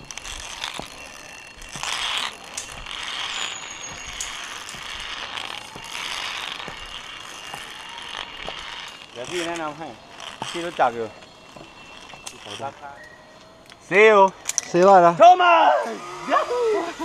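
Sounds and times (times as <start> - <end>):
pulley trolley rattling on cable: 0.0 - 13.1.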